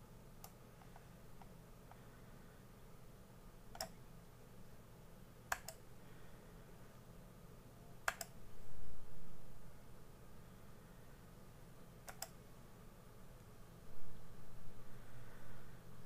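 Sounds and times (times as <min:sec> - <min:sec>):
steady low hum: 0:00.0 - 0:16.0
computer mouse clicks: 0:00.4 - 0:02.0, 0:03.7 - 0:04.0, 0:05.5 - 0:05.8, 0:08.0 - 0:08.4, 0:12.0 - 0:12.4.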